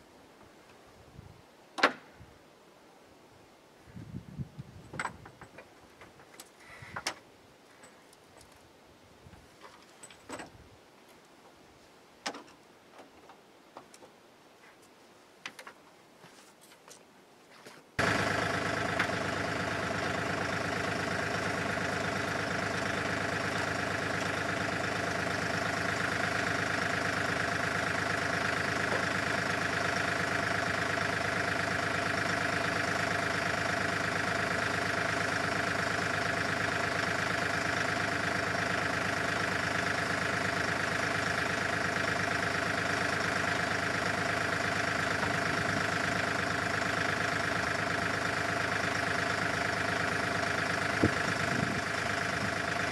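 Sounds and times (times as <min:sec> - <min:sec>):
tractor engine idling: 0:18.0 - 0:52.9.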